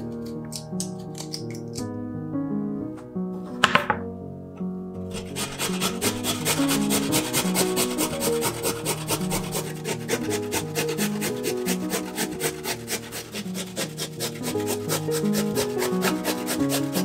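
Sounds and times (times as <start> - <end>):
background music: 0.0 - 17.0
root rasped on a metal grater: 5.1 - 17.0.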